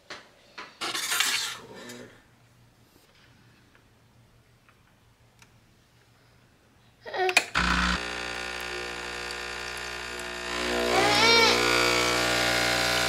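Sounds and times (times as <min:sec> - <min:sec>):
child babbling: 0:07.0 - 0:07.4, 0:10.8 - 0:11.8
espresso machine pump humming: 0:07.6 - 0:13.0.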